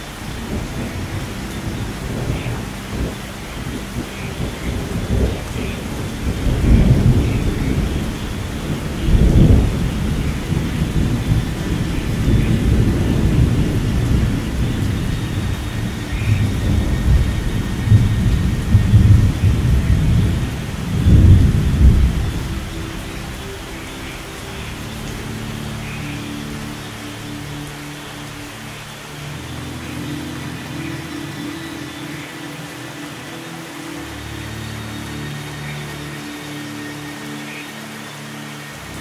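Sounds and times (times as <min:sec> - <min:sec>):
thunder rumbling: 0:00.0 - 0:26.9
steady rain: 0:00.0 - 0:39.0.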